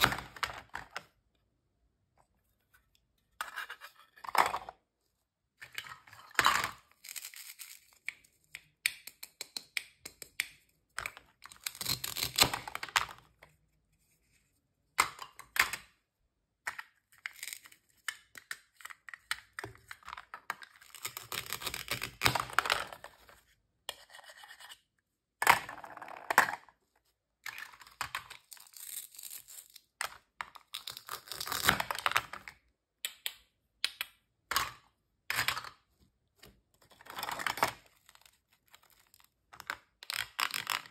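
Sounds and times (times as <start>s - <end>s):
plastic pieces clacking: 27.4s - 40.9s.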